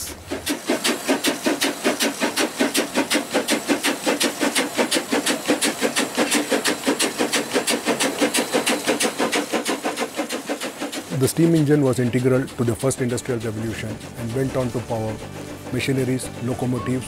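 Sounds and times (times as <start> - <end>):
steam locomotive chuffing: 0.0 - 17.0.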